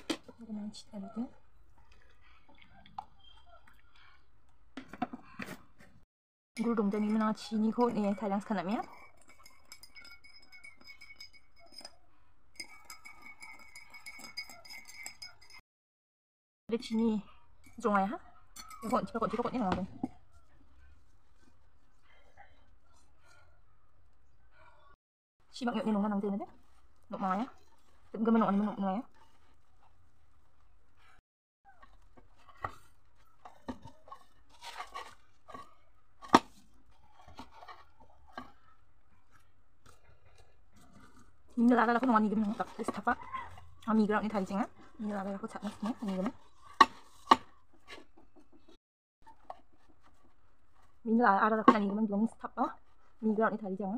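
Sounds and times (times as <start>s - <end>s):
teaspoon clinking in cup: 6.6s - 12.0s, 12.6s - 15.6s, 18.6s - 19.4s
hands kneading dough: 25.5s - 53.9s.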